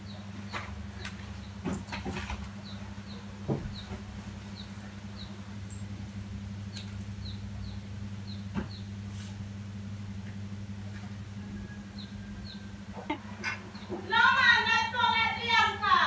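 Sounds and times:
steady low hum: 0.0 - 16.0
small bird chirping: 2.6 - 5.9, 6.7 - 9.0.

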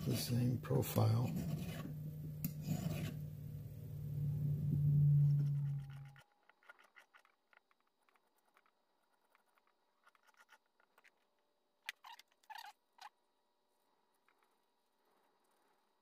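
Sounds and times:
metal file scrapes: 2.6 - 3.2
light clicks and scratches: 5.4 - 13.1, 14.0 - 16.0.

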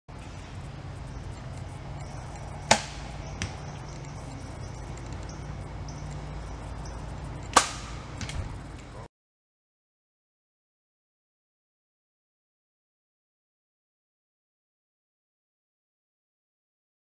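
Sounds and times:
bow string snapping: 7.4 - 8.5.

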